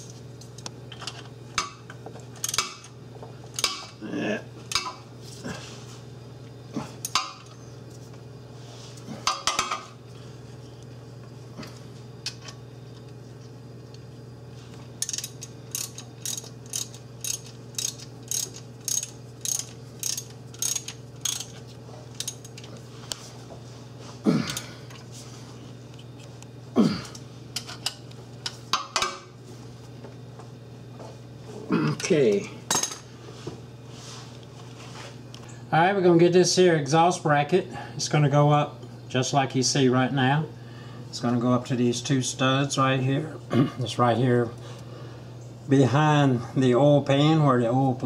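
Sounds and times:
socket ratchet clicking: 15.0 - 21.5.

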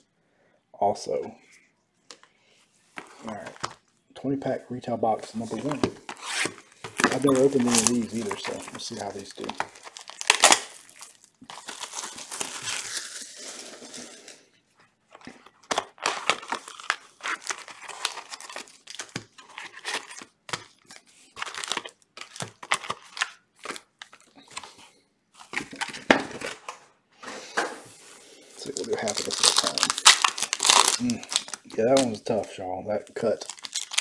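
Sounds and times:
foil packs crinkling: 5.3 - 14.4, 15.2 - 24.8, 28.2 - 34.0
cardboard box tearing: 6.1 - 8.8.

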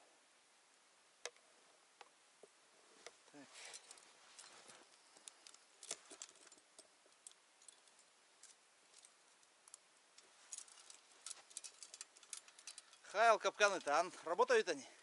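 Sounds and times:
small clicks from gloved hands: 3.0 - 14.0.

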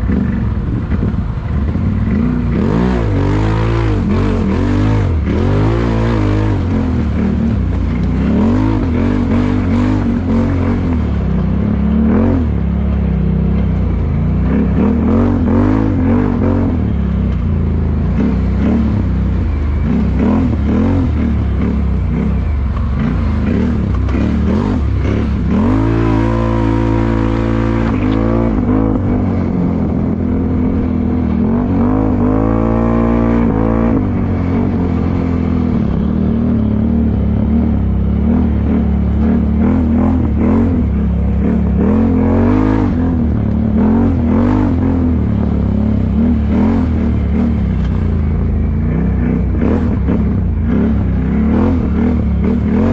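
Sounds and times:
quad bike engine revving: 0.0 - 52.9.

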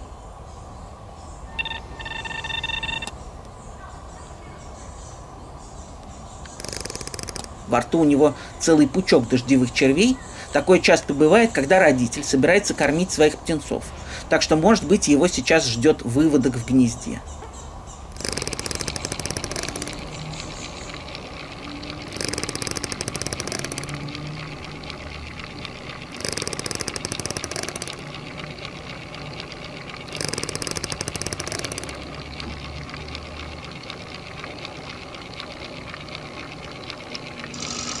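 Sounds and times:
thin held tone: 1.5 - 3.2
rapid ticking rattle: 6.3 - 9.3, 18.1 - 38.0.

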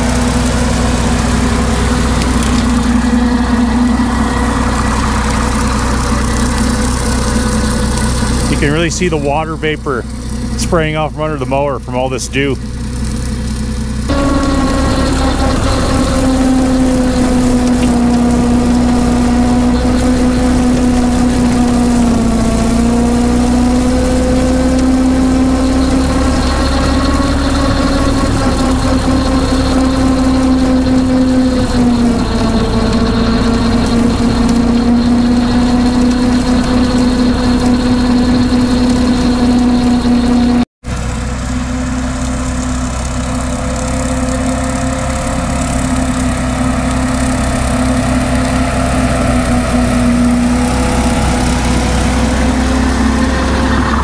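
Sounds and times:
tractor engine under load: 0.0 - 54.0
thin high whine: 14.1 - 40.6.

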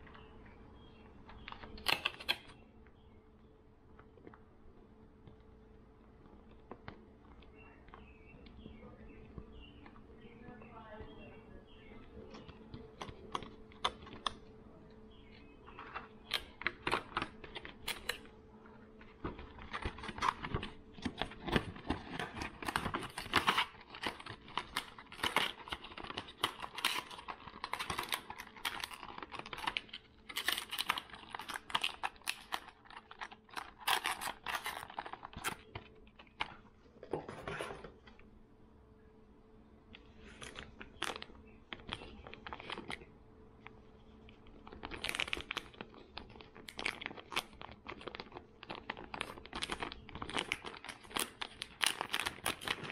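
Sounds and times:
faint steady hum: 0.0 - 52.9
plastic packaging crinkling: 0.9 - 2.6, 15.1 - 36.6, 40.0 - 52.9.

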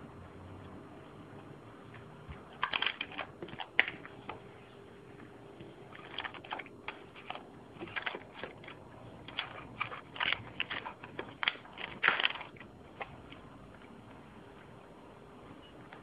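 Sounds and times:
cat crunching dry food: 2.4 - 4.4, 5.6 - 14.0.

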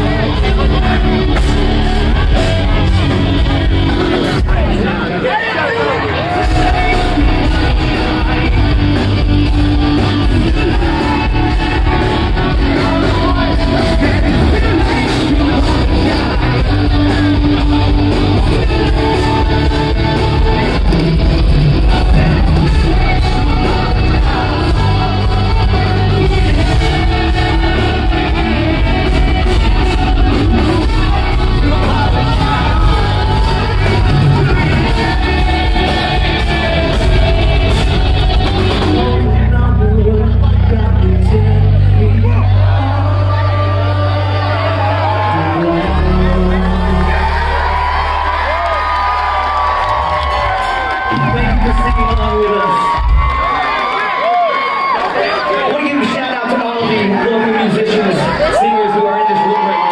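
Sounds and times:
person singing: 0.0 - 5.2, 6.4 - 48.5
bass guitar: 0.0 - 55.4
electric guitars: 0.0 - 56.1
drums: 0.0 - 56.2.

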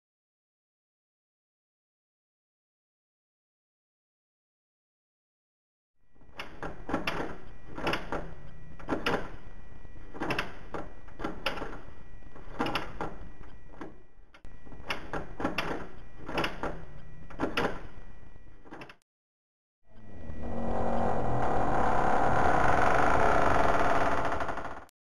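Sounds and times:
doorknob rattling and latch clicking: 6.3 - 9.4, 10.2 - 11.8, 12.4 - 13.2, 14.9 - 17.8.

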